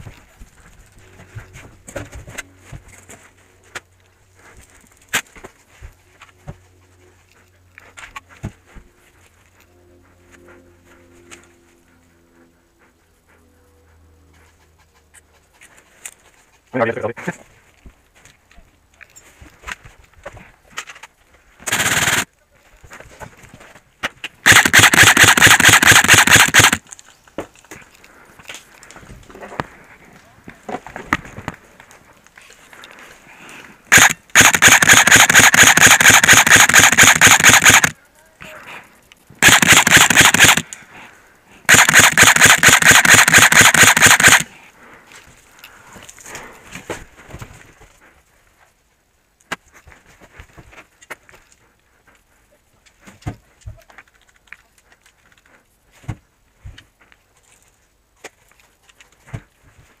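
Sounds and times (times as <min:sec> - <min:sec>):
airsoft rifle firing bursts: 0:21.6 - 0:22.3, 0:24.4 - 0:26.8, 0:33.9 - 0:38.0, 0:39.4 - 0:40.6, 0:41.7 - 0:44.5.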